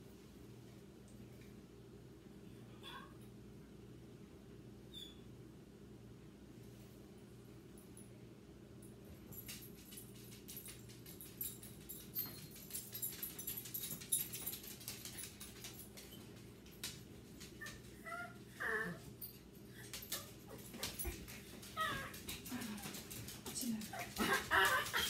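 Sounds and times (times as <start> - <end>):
small dog whimpering: 17.6 - 19.1, 21.7 - 22.9, 23.9 - 25.0.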